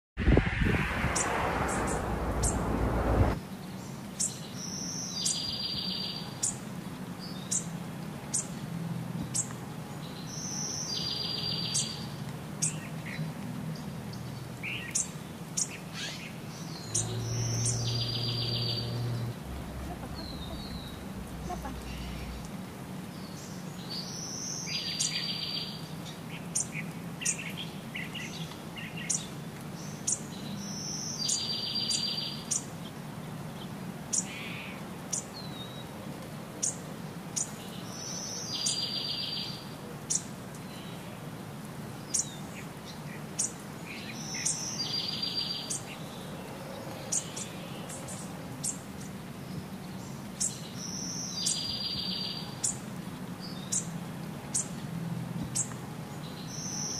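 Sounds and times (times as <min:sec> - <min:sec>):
steady low hum: 0:00.2 - 0:03.4.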